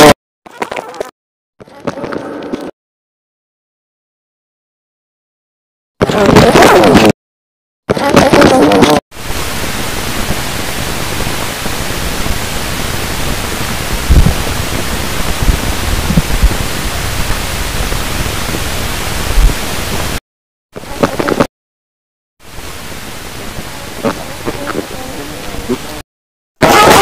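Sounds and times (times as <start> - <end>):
static hiss: 8.5 - 20.2, 20.8 - 21.5, 22.4 - 26.0
low thumps: 13.9 - 17.5.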